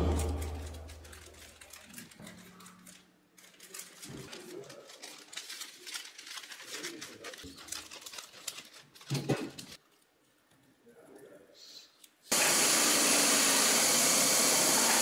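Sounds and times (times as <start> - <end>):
sheet crinkling: 0.0 - 10.1.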